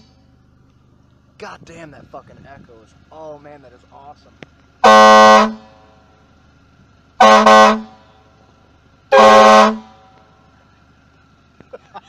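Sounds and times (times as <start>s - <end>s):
air horn blasts: 4.8s - 6.2s, 7.2s - 8.4s, 9.1s - 10.5s.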